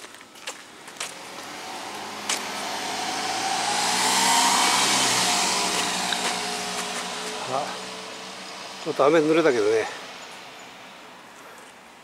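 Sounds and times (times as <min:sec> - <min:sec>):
footsteps on pavement: 0:00.0 - 0:02.7, 0:05.4 - 0:07.9
car driving past: 0:01.1 - 0:11.2.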